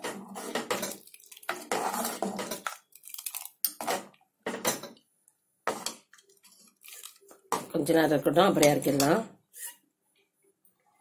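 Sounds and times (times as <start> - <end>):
metal ladle scraping a pot: 0.0 - 2.8, 8.6 - 9.9.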